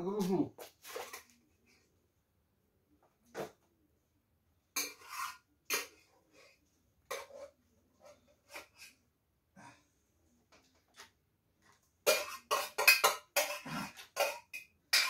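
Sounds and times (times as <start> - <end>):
bowls clattering: 12.0 - 15.0.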